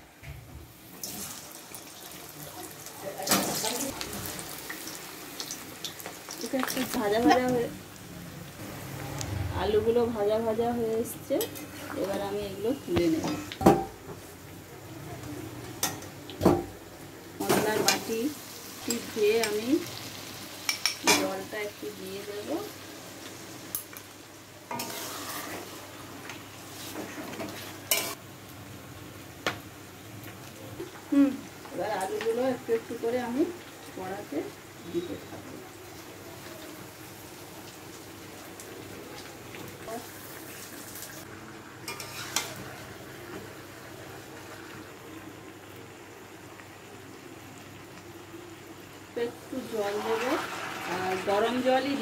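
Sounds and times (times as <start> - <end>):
water sizzling in hot oil: 0.7 - 9.0, 10.5 - 14.8, 15.4 - 52.0
metal utensil clanking on pan: 20.7 - 21.4, 24.7 - 25.6, 27.4 - 28.2, 41.9 - 42.6
spatula scraping a pan: 24.7 - 25.8, 41.9 - 42.6, 49.8 - 52.0.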